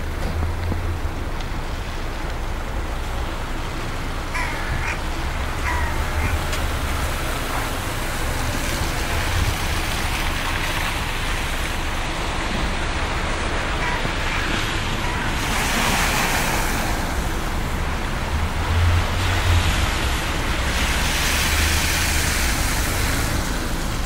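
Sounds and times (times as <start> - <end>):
city traffic rumble: 0.0 - 24.0
wind: 0.0 - 24.0
crow cawing: 4.3 - 6.6, 13.7 - 15.4.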